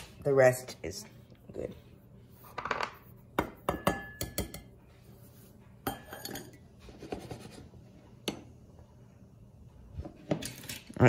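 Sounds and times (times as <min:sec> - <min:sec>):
mugs knocking on countertop: 0:02.6 - 0:04.6
spoon clinking against mugs: 0:03.6 - 0:04.7, 0:05.8 - 0:06.6.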